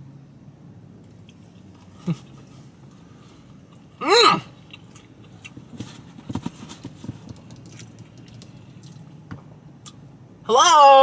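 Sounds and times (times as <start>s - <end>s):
mouth chewing smacks: 7.2s - 9.1s.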